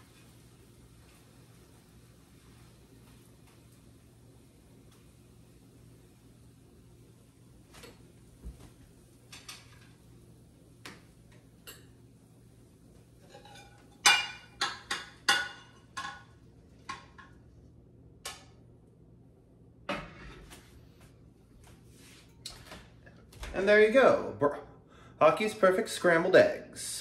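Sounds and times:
pan clinking on ceramic plate: 13.2s - 16.3s.

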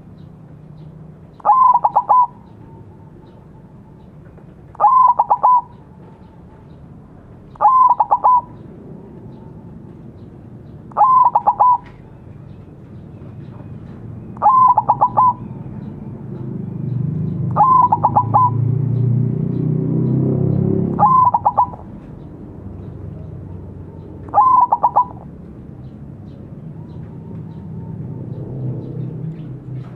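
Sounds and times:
dove cooing: 1.4s - 6.8s, 7.5s - 10.2s, 10.8s - 12.2s, 14.3s - 16.0s, 17.5s - 18.7s, 20.8s - 22.1s, 23.1s - 29.9s.

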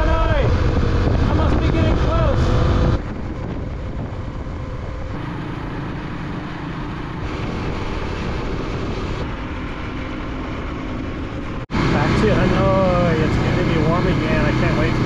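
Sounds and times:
motorcycle engine hum: 0.0s - 15.0s
wind and road noise: 0.0s - 15.0s.

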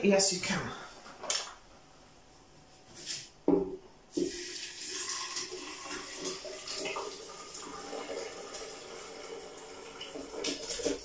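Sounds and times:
soup pouring into blender jug: 4.1s - 11.0s.

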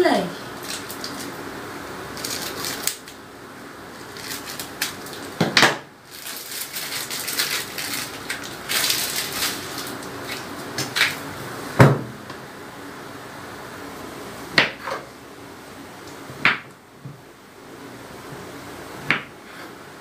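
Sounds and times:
food wrapper crinkling: 0.6s - 1.4s, 2.1s - 3.2s, 4.0s - 5.4s, 6.0s - 11.2s.

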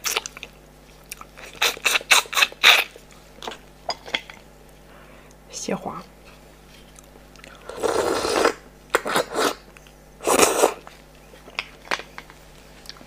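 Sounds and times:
wet slurping: 7.7s - 9.6s.

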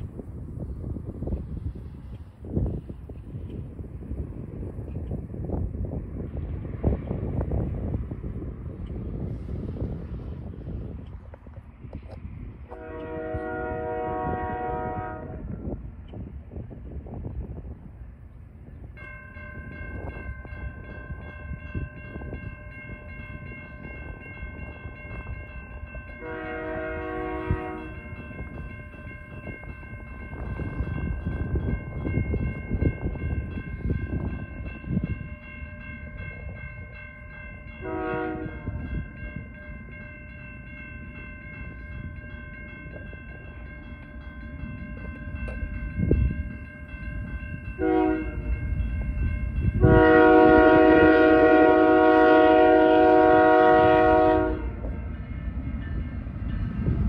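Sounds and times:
train rumble: 0.0s - 57.0s
locomotive air horn blasts: 12.7s - 15.7s, 26.2s - 28.2s, 37.8s - 38.9s, 47.8s - 48.6s, 49.8s - 54.9s
crossing signal bell ringing: 18.8s - 57.0s.

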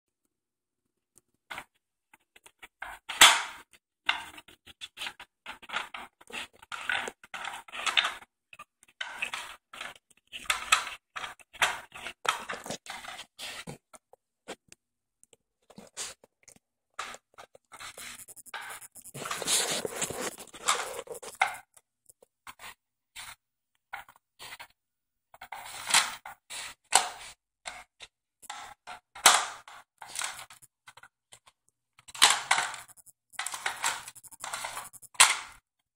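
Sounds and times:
rustling: 17.4s - 21.5s.

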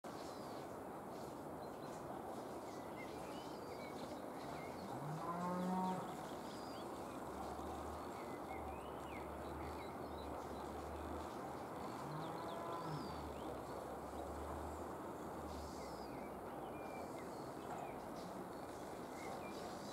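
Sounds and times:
cow mooing: 5.0s - 6.1s, 12.0s - 13.4s.

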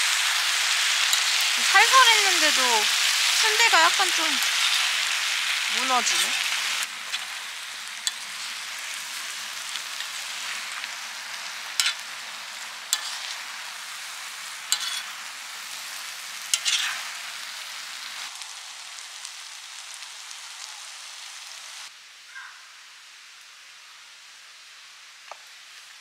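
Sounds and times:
food sizzling on a griddle: 0.0s - 22.3s, 22.9s - 26.0s
metal spoon clinking on pan: 11.8s - 12.0s, 14.7s - 15.1s, 16.5s - 16.9s.

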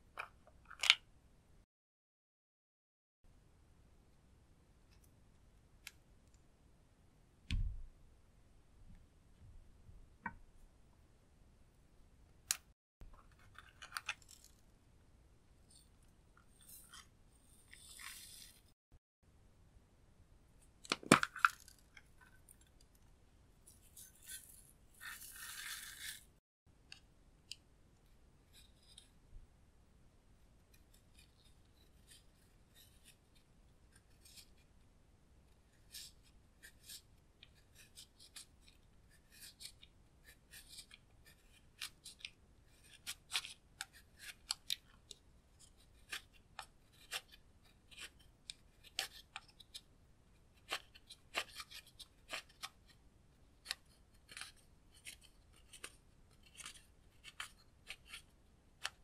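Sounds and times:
spatula scraping pressed powder: 15.7s - 18.8s, 23.6s - 26.4s, 50.4s - 59.0s.

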